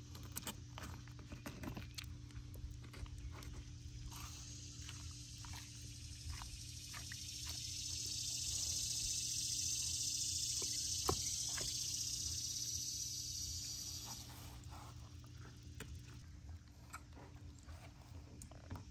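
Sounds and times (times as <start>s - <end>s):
high insect buzz: 4.1s - 14.7s.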